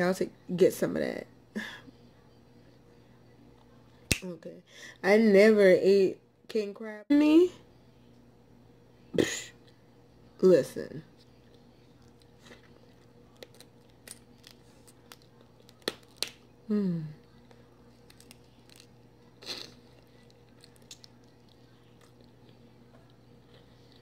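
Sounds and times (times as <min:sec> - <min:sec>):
person humming mm: 0:16.7 - 0:17.2
wet smacking and chewing: 0:17.4 - 0:24.0.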